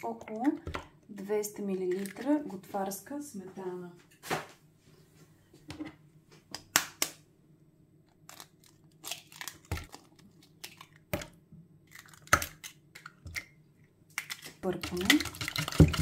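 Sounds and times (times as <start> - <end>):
eggshells cracking on a bowl: 8.1 - 16.0.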